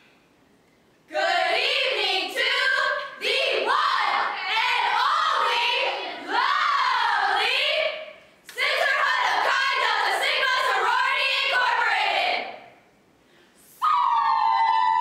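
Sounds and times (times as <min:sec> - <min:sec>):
short breaths: 0:13.2 - 0:13.8.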